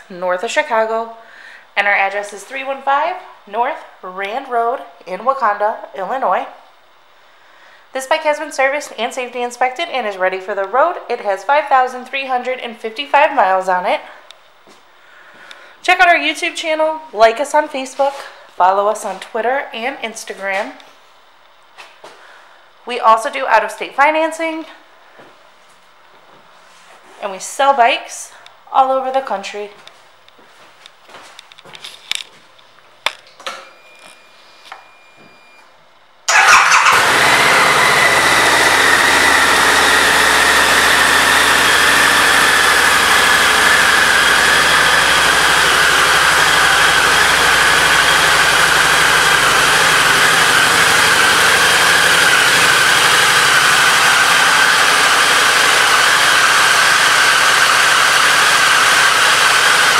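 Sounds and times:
motorcycle engine starting and idling: 36.3 - 59.9.

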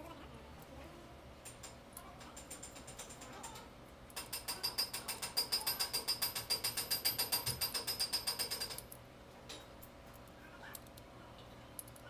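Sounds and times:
ratchet wrench clicking: 4.2 - 8.9.

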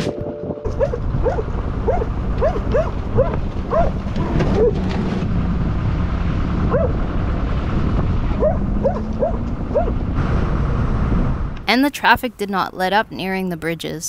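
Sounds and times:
steady low rumble: 0.0 - 11.9
dog barking in high yips: 0.8 - 4.0, 8.4 - 10.0.

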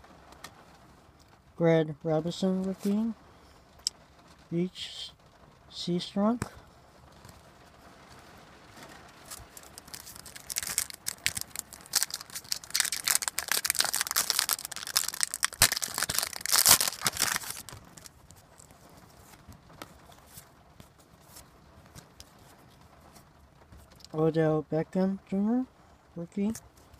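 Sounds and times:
wrapper tearing and crinkling: 9.2 - 19.4.

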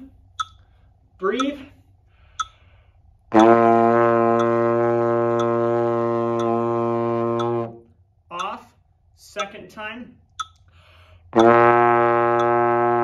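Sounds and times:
metronome ticking: 0.0 - 13.0
trombone low note: 3.3 - 7.8, 11.4 - 13.0.

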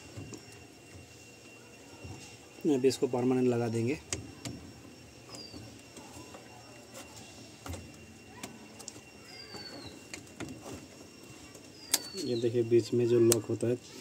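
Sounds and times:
faint bird chirp: 3.7 - 14.0.

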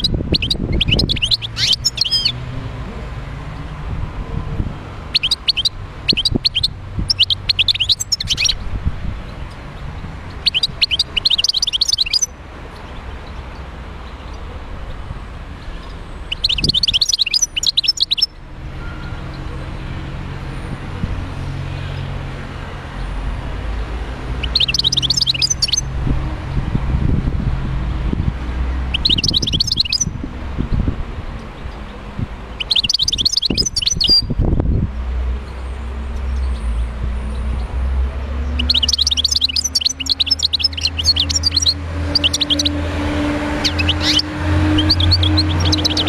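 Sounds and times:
goldfinch twittering: 0.0 - 2.4, 5.1 - 8.6, 10.3 - 12.3, 15.8 - 18.4, 24.3 - 25.9, 28.9 - 30.1, 32.5 - 34.3, 38.5 - 42.8, 43.5 - 46.0.

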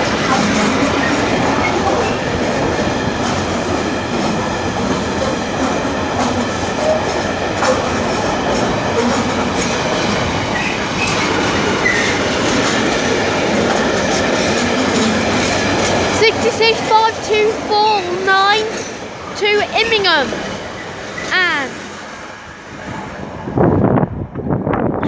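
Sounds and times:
train wheels rumbling on rails: 0.0 - 25.0
clicks of train wheels: 3.2 - 17.7.

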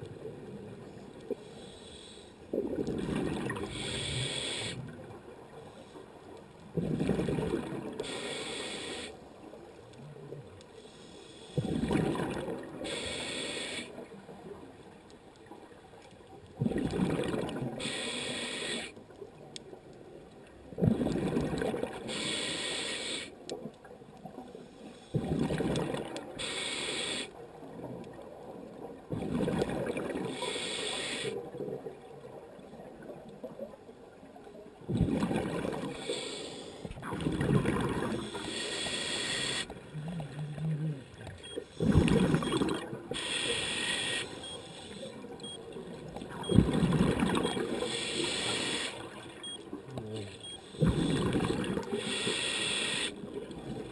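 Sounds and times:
regulator inhale hiss: 1.4 - 2.5, 3.6 - 4.9, 8.0 - 9.2, 10.8 - 11.7, 12.8 - 14.0, 17.8 - 19.0, 22.0 - 23.4, 26.3 - 27.4, 30.3 - 31.4, 35.9 - 36.9, 38.1 - 39.8, 43.1 - 45.2, 47.8 - 49.1, 51.9 - 53.2
exhaled bubbles rumbling: 2.6 - 3.7, 6.7 - 8.0, 11.6 - 12.8, 16.6 - 17.8, 20.7 - 22.0, 25.2 - 26.2, 29.1 - 30.2, 34.8 - 35.9, 37.0 - 38.4, 39.8 - 43.1, 45.8 - 47.8, 50.8 - 52.0.

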